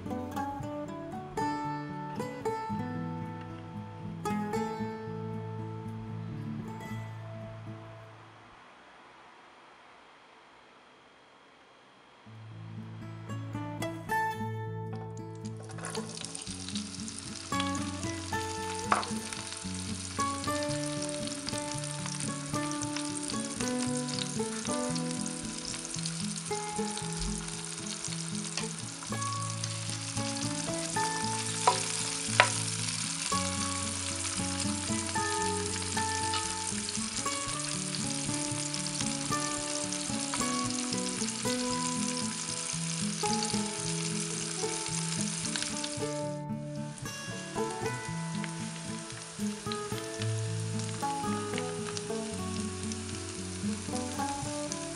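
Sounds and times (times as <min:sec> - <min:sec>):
light background music: 0:12.9 - 0:54.9
peppers sizzling in hot oil: 0:15.4 - 0:54.9.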